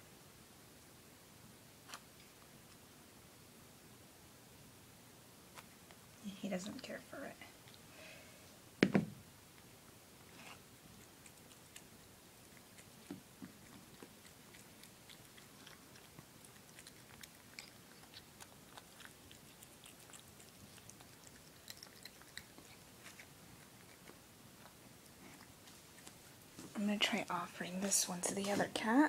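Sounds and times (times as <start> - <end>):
cat chewing wet food: 7.5 - 7.9, 9.6 - 26.6.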